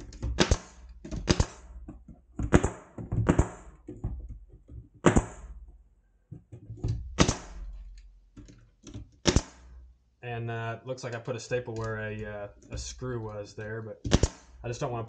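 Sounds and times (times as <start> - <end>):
pneumatic stapler firing: 0.2 - 1.7, 7.1 - 7.8, 9.2 - 9.6, 14.1 - 14.5.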